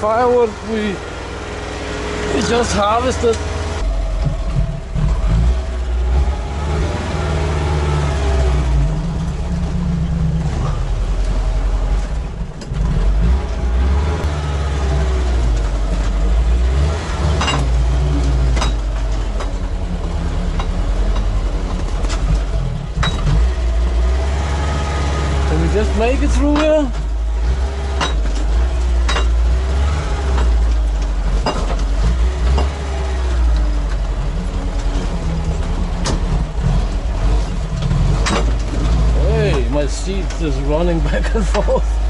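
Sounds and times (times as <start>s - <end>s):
tracked vehicle engine under load: 0.0s - 42.0s
sharp metal clanks: 17.3s - 17.8s, 18.5s - 19.6s, 23.0s - 23.4s, 28.0s - 29.5s, 31.2s - 32.8s.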